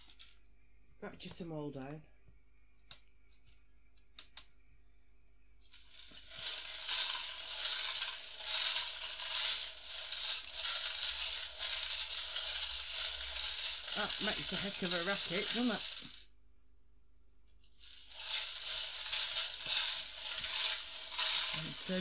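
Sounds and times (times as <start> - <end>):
plastic pieces rattling in drum: 5.7 - 16.2, 17.7 - 22.0.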